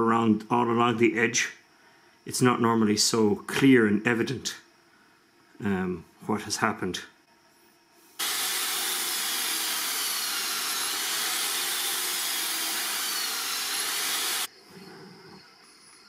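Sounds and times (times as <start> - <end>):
belt sander grinding metal: 8.2 - 14.5.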